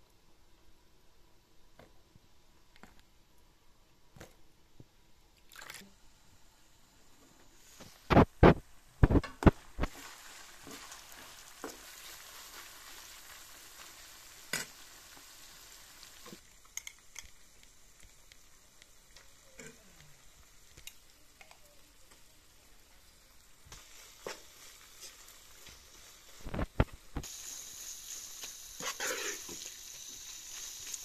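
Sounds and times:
meat sizzling in a pan: 7.6s - 31.0s
metal spoon scraping a pan: 28.8s - 29.7s.

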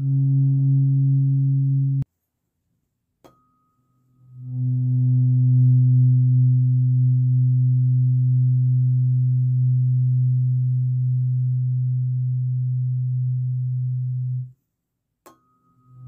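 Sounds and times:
tuning fork ringing: 3.3s - 14.4s, 15.3s - 16.0s.

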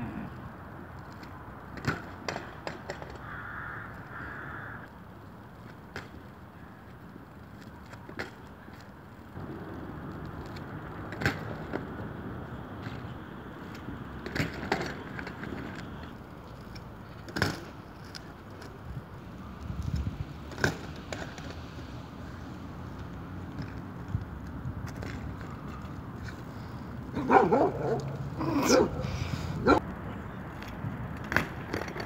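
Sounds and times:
bike tyres rolling on asphalt: 0.0s - 32.0s
bike landing with clattering knocks: 1.8s - 3.2s, 14.2s - 15.8s, 17.2s - 17.8s, 20.5s - 21.5s.

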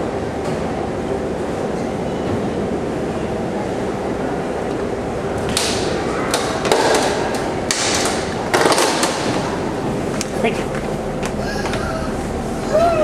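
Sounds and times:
boat engine rumble: 9.6s - 13.0s.

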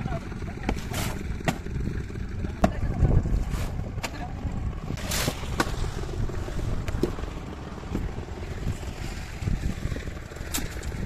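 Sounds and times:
machinery engine running: 0.0s - 11.0s.

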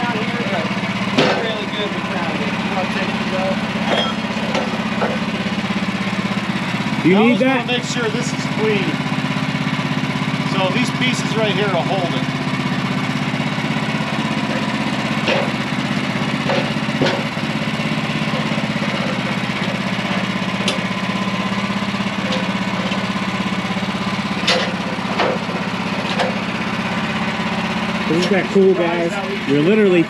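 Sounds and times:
sawmill engine idling: 0.0s - 30.0s
knocks and clunks of log: 1.1s - 1.5s, 14.5s - 15.6s, 16.4s - 17.5s.

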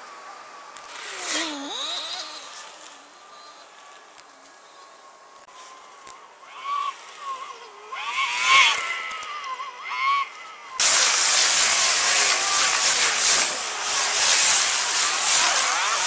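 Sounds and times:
short rising and falling squeals: 5.6s - 10.8s.

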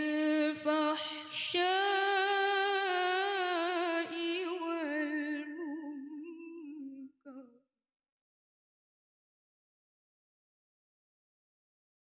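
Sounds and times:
girl reciting melodically: 0.0s - 7.4s.

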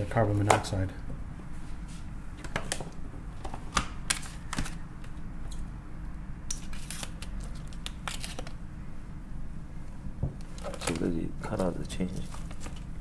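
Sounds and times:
plastic wrap crinkling: 6.6s - 8.6s.

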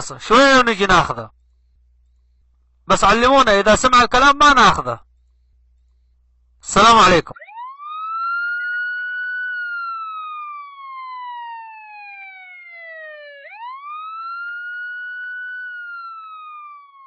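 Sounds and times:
wailing siren: 6.8s - 17.0s.

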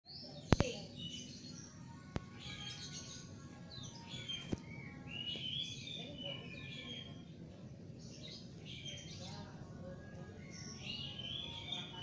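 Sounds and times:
small birds chirping: 0.1s - 12.0s.

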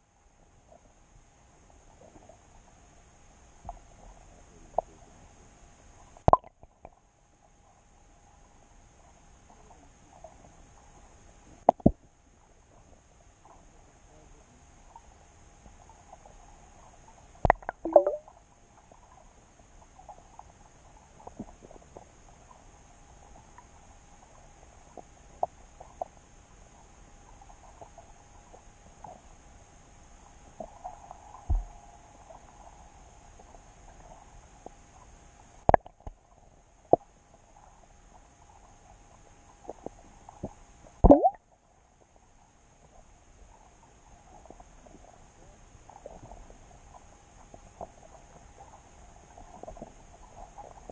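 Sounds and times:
faint underwater hum: 0.0s - 50.9s
dull low thump: 31.5s - 31.7s.

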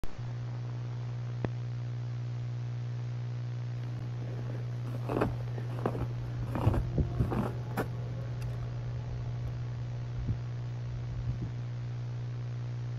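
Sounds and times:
low electrical hum: 0.0s - 12.9s
tape crackling and scraping: 3.8s - 8.7s.

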